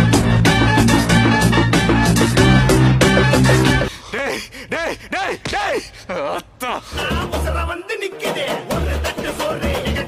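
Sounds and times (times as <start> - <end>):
music with drum beat and bass: 0.0 - 3.9, 8.3 - 10.0.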